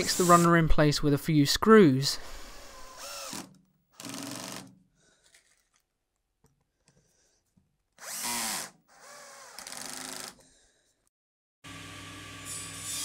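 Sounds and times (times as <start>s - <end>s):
cordless drill motor whining: 2.2s - 4.6s, 8.0s - 10.4s.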